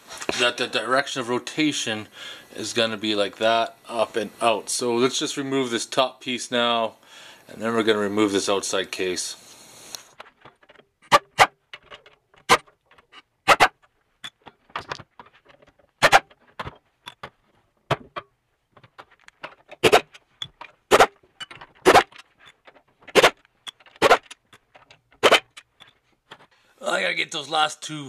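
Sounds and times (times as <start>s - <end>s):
impact wrench rattling: 10.1s - 26.5s.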